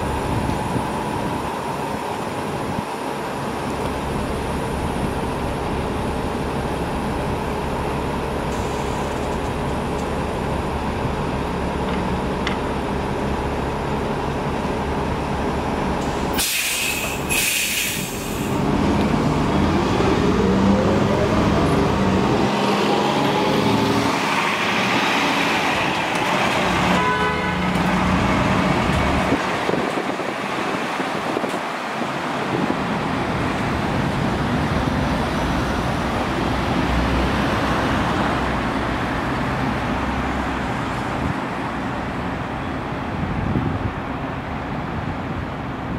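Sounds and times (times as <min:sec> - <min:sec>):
bus engine whine pulling away: 0:00.0 - 0:45.9
diesel bus idling: 0:00.0 - 0:45.9
air brakes hissing: 0:08.5 - 0:09.2, 0:16.0 - 0:18.6.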